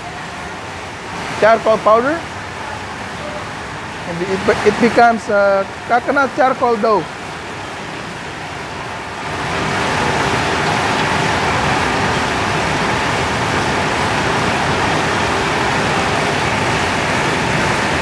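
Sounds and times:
machine drone: 0:07.1 - 0:18.0.

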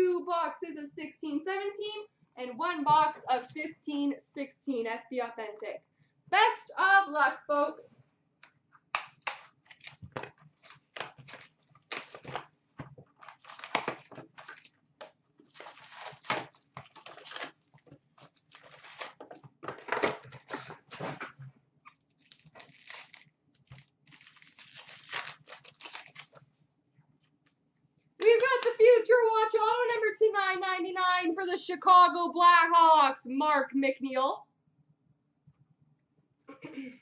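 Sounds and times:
wrapped packs crinkling: 0:09.2 - 0:12.5, 0:13.1 - 0:14.7, 0:15.4 - 0:20.9, 0:22.0 - 0:26.4.

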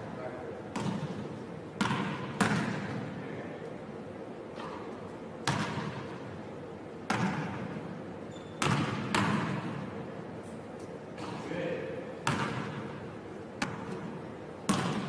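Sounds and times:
basketball thudding on gym floor: 0:00.7 - 0:01.2, 0:01.8 - 0:03.0, 0:08.6 - 0:09.7, 0:14.7 - 0:15.0.

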